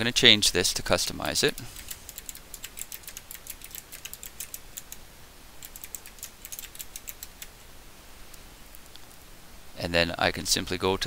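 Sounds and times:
keyboard key clicks: 1.2 - 5.0, 5.6 - 7.6.

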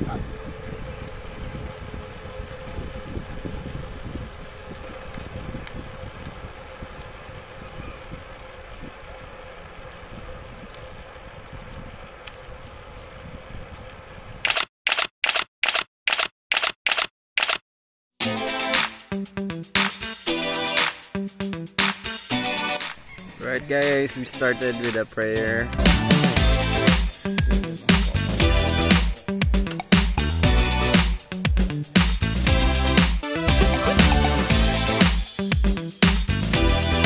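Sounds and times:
wind buffeting microphone: 0.0 - 14.5
camera shutter clicks: 14.4 - 17.6.

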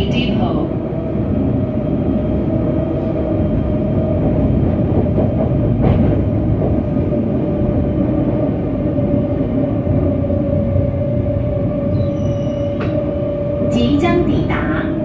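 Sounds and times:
tram wheels rumbling on track: 0.0 - 15.0.

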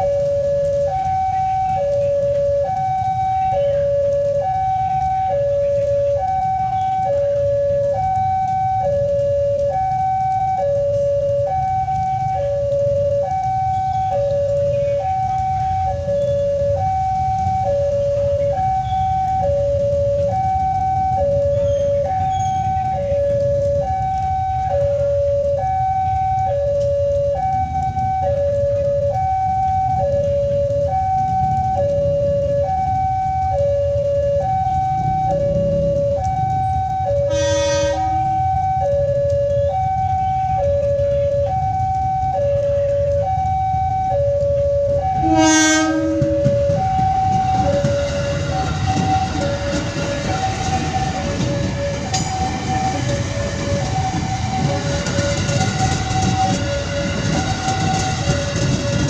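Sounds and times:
two-tone level crossing alarm: 0.0 - 59.0
steady low rumble: 16.6 - 37.3
train horn blast: 37.2 - 38.5, 45.2 - 58.6.

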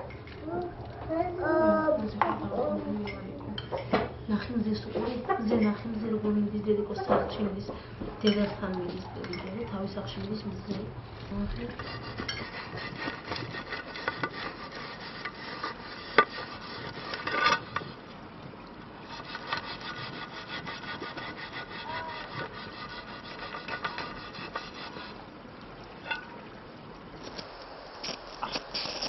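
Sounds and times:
scraping and rubbing with clicks: 11.6 - 18.0, 19.1 - 25.2.

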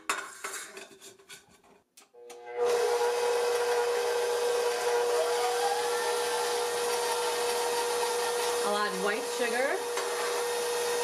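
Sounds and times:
stand mixer motor whine: 2.4 - 11.0.

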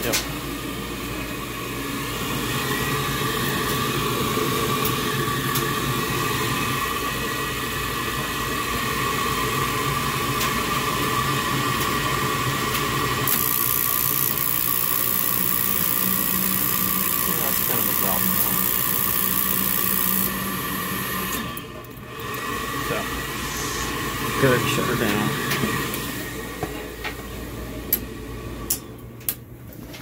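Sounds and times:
furnace motor hum and whine: 0.0 - 30.0
gas hissing: 22.5 - 26.2.

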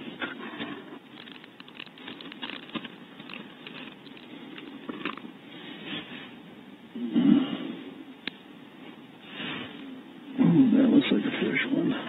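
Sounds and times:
hand scratching in nest box: 0.2 - 5.2.

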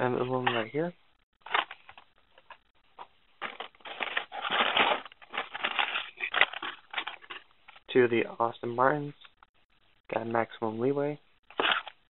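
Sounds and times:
plastic blister packs crinkling: 1.4 - 7.9.

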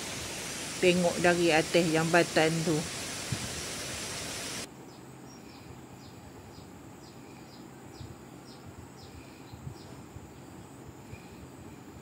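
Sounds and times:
waterfall rushing: 0.0 - 4.7
forest ambience: 0.0 - 12.0.

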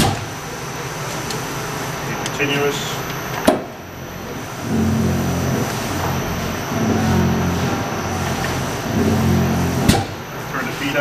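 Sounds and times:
press drive droning: 0.0 - 11.0.

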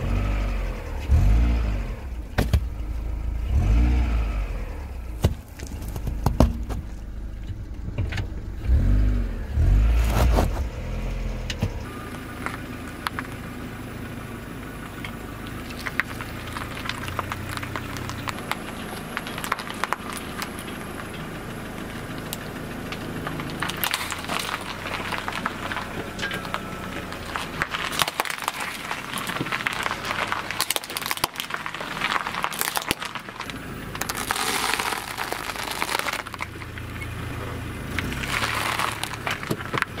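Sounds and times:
car engine running low: 0.0 - 40.0
biscuits crunching under tyre: 5.0 - 7.6, 9.6 - 10.9, 11.6 - 14.1, 14.8 - 40.0
plastic lighters cracking under tyre: 15.0 - 21.2, 22.2 - 37.0, 37.9 - 40.0.

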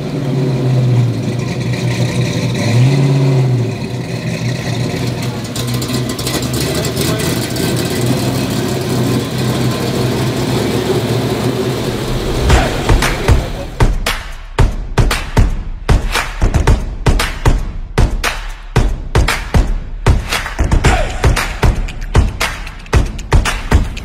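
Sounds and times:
car engine running and revving: 0.0 - 14.2.

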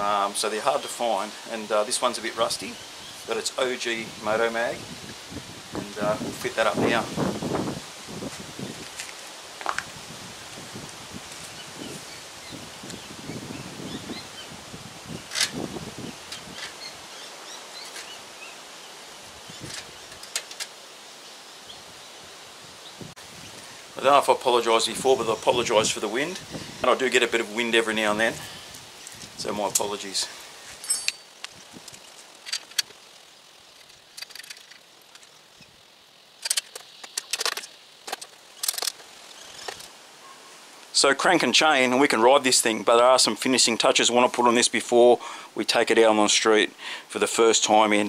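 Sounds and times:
wind noise on microphone: 2.4 - 17.2, 19.1 - 20.5, 21.7 - 24.2, 24.8 - 30.1, 30.8 - 32.1
metallic clinks of bolts and tool: 30.8 - 31.4.

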